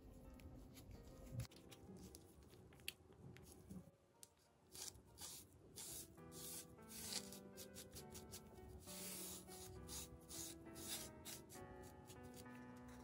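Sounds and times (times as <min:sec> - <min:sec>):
quiet instrumental background music: 0:00.0 - 0:13.0
sponge dabbing on cardboard: 0:05.2 - 0:11.5.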